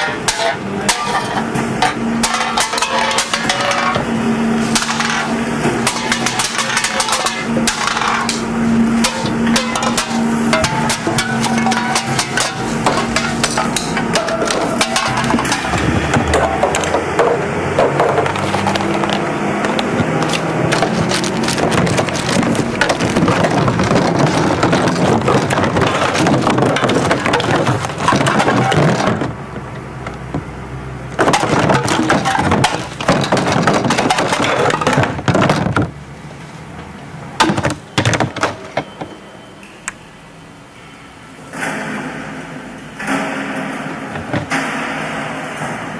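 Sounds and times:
packaging crumpling and crackling: 0:18.3 - 0:28.9.

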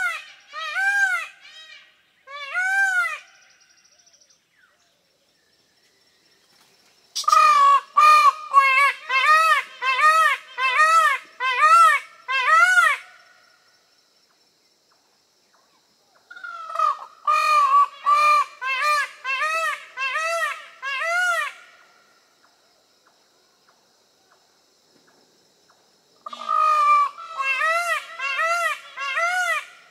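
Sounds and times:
peafowl honking calls: 0:07.2 - 0:13.2, 0:26.2 - 0:29.9.

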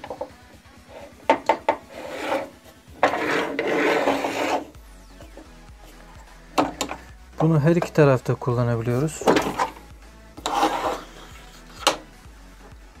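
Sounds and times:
metal bar sliding in slot: 0:01.8 - 0:04.7, 0:10.4 - 0:12.1.

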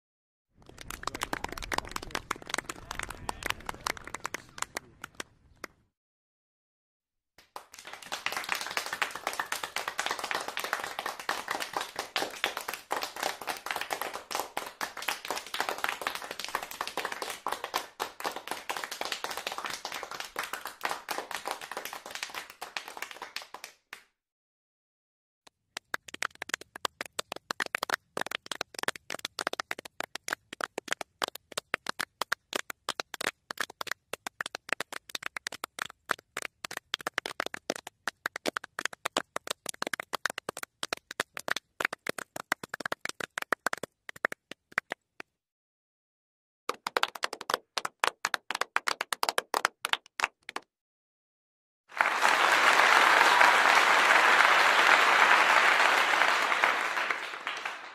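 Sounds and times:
crowd applause: 0:00.6 - 0:05.4, 0:07.4 - 0:23.8, 0:46.7 - 0:50.6, 0:51.9 - 0:57.9
sparse clapping: 0:00.6 - 0:05.8, 0:07.4 - 0:24.1, 0:25.7 - 0:45.3, 0:46.7 - 0:50.7, 0:52.0 - 0:57.9.

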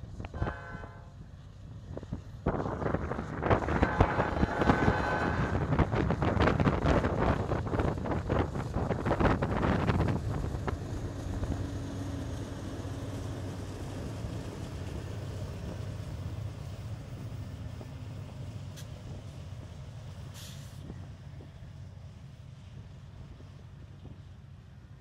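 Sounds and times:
diesel locomotive engine rumble: 0:00.0 - 0:25.0
train wheels on rail: 0:00.0 - 0:25.0.

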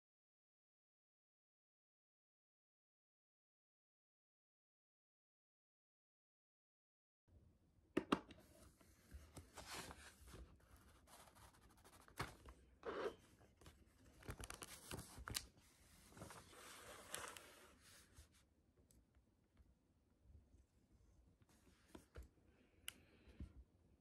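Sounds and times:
paper rustling: 0:08.5 - 0:18.4.

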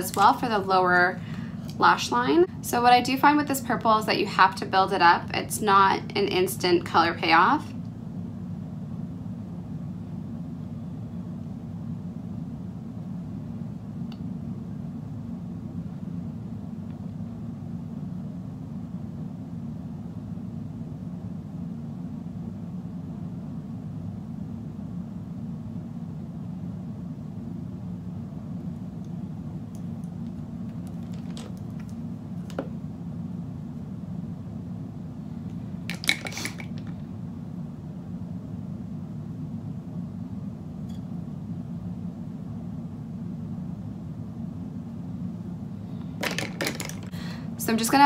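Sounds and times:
low background hum: 0:00.0 - 0:48.0
makeup items clicking: 0:35.9 - 0:36.9, 0:46.2 - 0:47.1.

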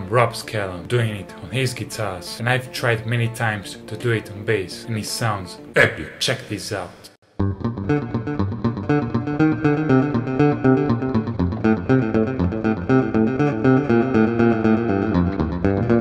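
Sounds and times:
electric bass with delay echoes: 0:07.4 - 0:16.0.

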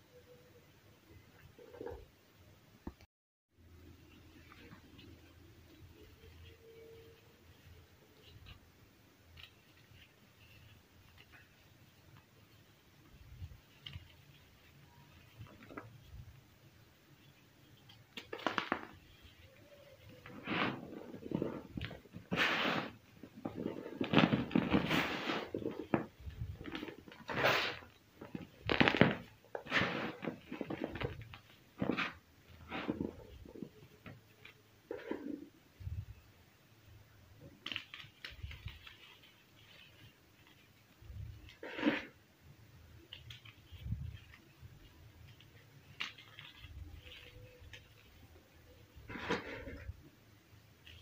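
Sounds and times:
powder rustling: 0:03.8 - 0:51.0
sharp little crackles: 0:17.2 - 0:36.2, 0:37.4 - 0:42.2, 0:42.9 - 0:50.0.

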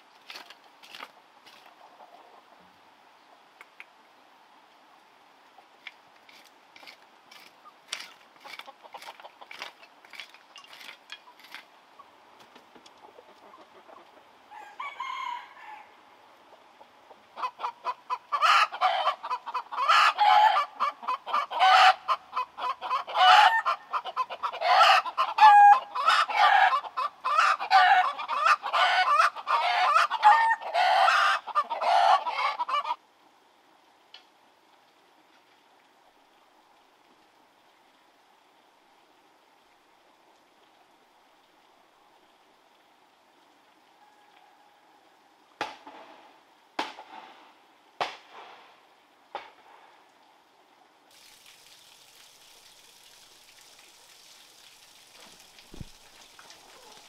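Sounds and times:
chicken clucking and calling: 0:01.6 - 0:03.5, 0:12.8 - 0:33.0.

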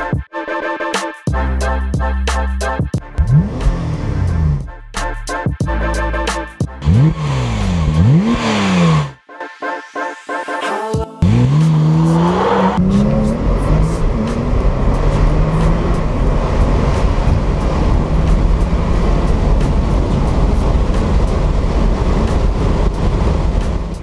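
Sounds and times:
car engine at full throttle: 0:03.1 - 0:04.7, 0:06.8 - 0:09.2, 0:11.2 - 0:24.0
wind and road noise: 0:06.8 - 0:09.2, 0:11.2 - 0:24.0.

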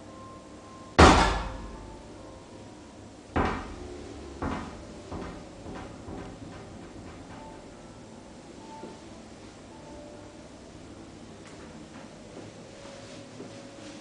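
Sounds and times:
knocks in a tiled bathroom: 0:01.0 - 0:01.8, 0:03.4 - 0:07.6.

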